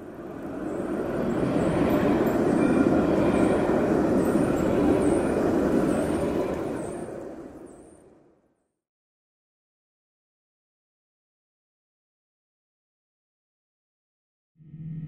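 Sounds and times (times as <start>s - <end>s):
tram rumbling on rails: 0.0s - 8.4s.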